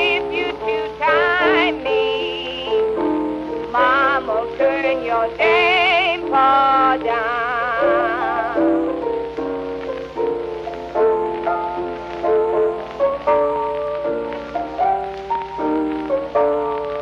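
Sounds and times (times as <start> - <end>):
woman singing with vibrato: 0.0 - 3.0, 3.7 - 9.1
held accompanying notes: 0.0 - 17.0
record surface hiss: 0.0 - 17.0.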